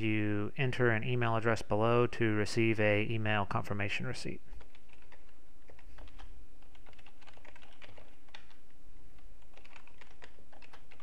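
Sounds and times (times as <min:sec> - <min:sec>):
typing on computer keyboard: 0:04.5 - 0:08.7, 0:09.4 - 0:11.0.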